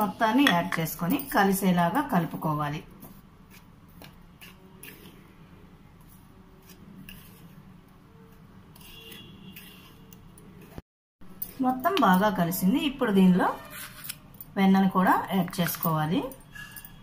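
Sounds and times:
spoon scraping powder in bowl: 3.0s - 10.8s.

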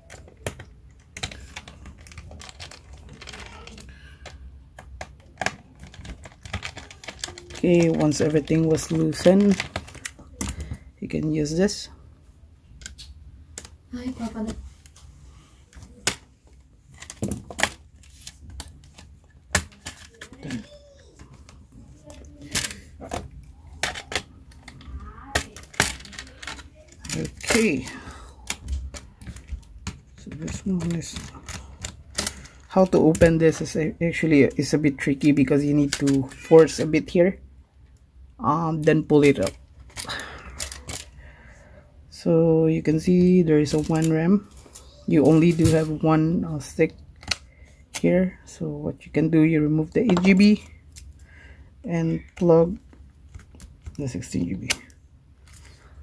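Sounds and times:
hands clicking on plastic laptop cover: 0.0s - 10.7s.

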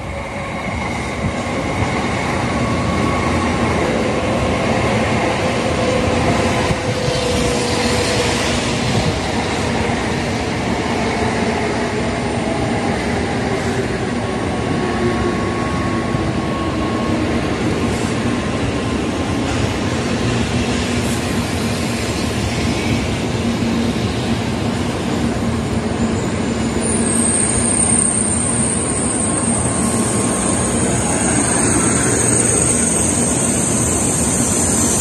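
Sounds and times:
train wheels rumbling on rail: 0.0s - 35.0s
train whining tones: 25.6s - 35.0s.

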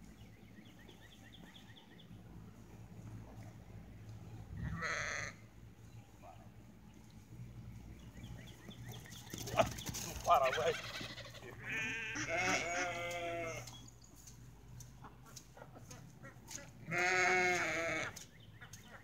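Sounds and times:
farm animal bleating: 4.6s - 5.5s, 9.5s - 13.9s, 16.8s - 18.2s.

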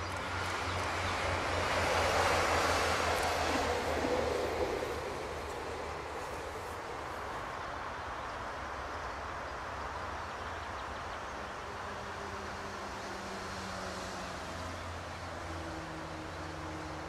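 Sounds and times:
faint engine hum: 0.0s - 17.0s
train rumble with hiss: 0.3s - 9.5s.

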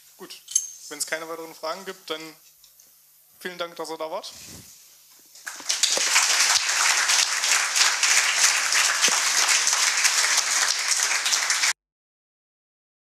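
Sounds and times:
audience applauding: 5.4s - 11.8s.

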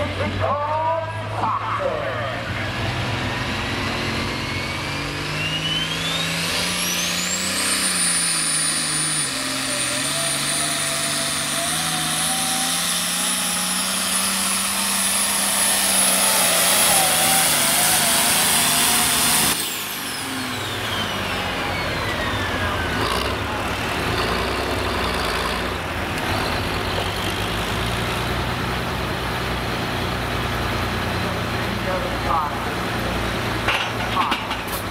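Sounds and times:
diesel engine under load: 0.0s - 34.9s
turbo whine: 4.1s - 23.5s.

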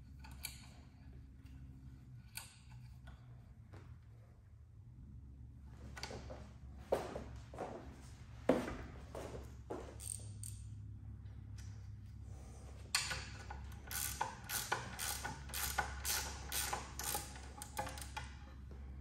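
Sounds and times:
ratchet wrench clicking: 0.2s - 0.8s, 10.0s - 10.7s, 12.9s - 18.4s.

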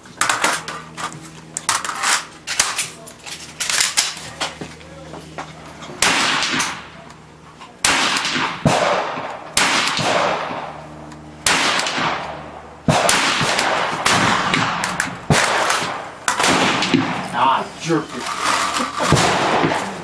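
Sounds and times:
echoing gunshots: 6.0s - 7.0s, 7.8s - 17.6s, 19.0s - 20.0s.

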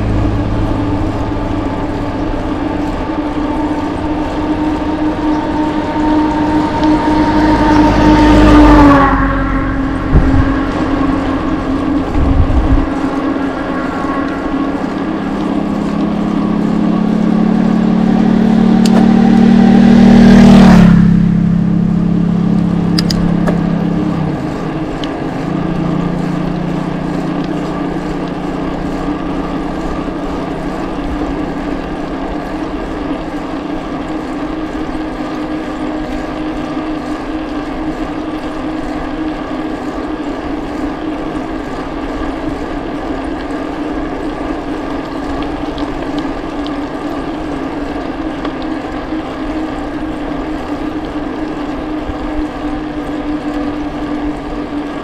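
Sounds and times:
vehicle engine passing by: 0.0s - 39.9s
steady engine hum: 0.0s - 55.0s.

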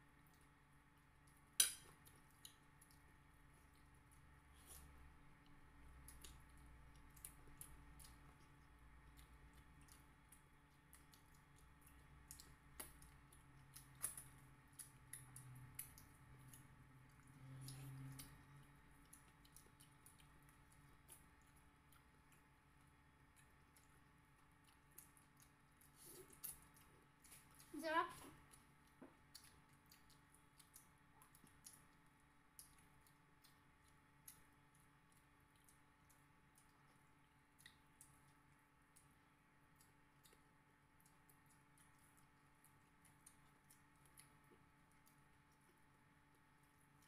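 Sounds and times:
chewing mouth clicks and smacks: 0.1s - 27.7s, 28.3s - 47.0s
fingers picking at food: 1.2s - 47.0s.

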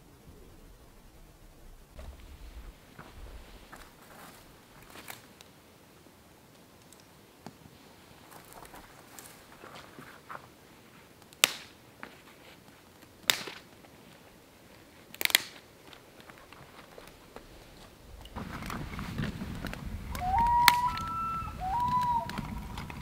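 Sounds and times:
dry sticks snapping: 11.2s - 11.8s, 13.0s - 13.7s, 14.7s - 17.2s, 19.6s - 23.0s
loon wailing: 20.1s - 23.0s.

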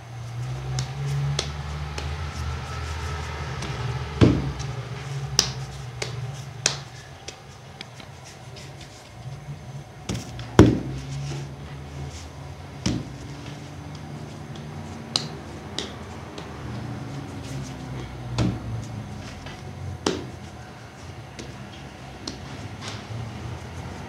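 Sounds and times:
low steady hum: 0.0s - 24.0s
dull thud: 4.2s - 4.5s.

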